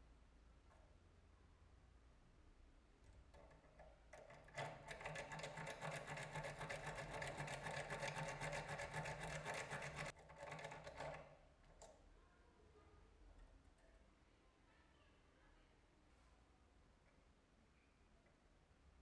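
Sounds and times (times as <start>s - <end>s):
lock pick rattling pins: 3.3s - 11.3s.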